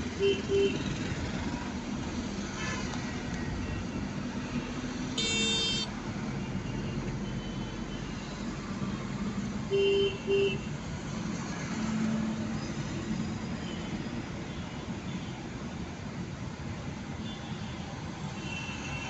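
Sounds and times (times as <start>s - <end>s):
car cabin road and engine noise: 0.0s - 17.3s
vehicle horn honking: 5.2s - 5.9s.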